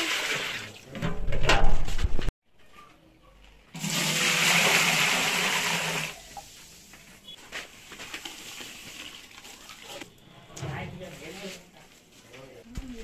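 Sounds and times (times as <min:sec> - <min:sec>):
water pouring into metal pot: 0:03.8 - 0:06.5, 0:08.2 - 0:10.1.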